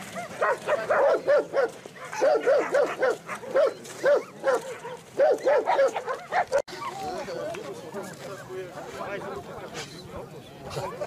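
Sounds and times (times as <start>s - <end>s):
dogs barking: 0.0s - 7.1s.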